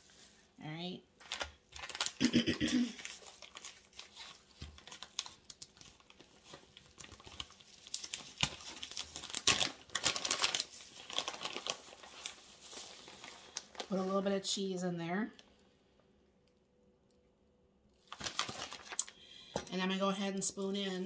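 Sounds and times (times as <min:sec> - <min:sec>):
plastic bag crinkling: 0:01.2 - 0:14.3, 0:18.0 - 0:19.2.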